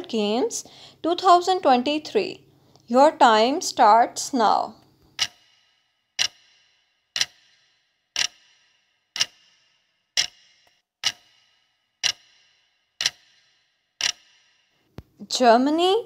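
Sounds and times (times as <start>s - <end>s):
clock ticking: 4.8s - 15.1s.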